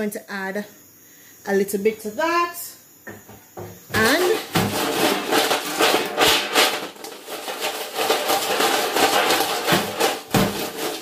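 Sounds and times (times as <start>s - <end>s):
chips rattling in metal bowl: 4.0s - 11.0s.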